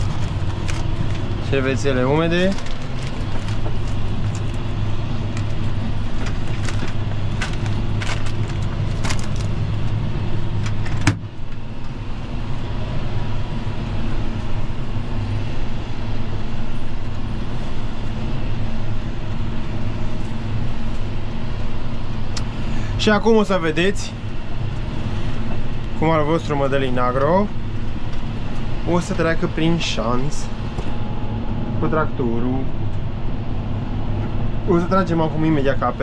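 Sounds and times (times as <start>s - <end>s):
tractor engine running: 0.0s - 36.0s
light rattles and clicks: 5.3s - 9.6s.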